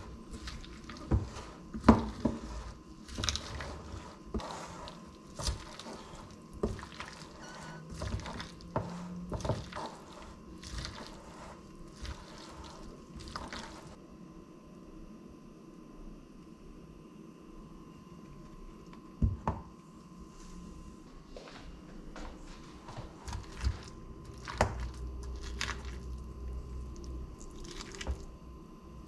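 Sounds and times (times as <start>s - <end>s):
wet squelching of salad leaves: 2.1s - 14.0s, 27.0s - 28.2s.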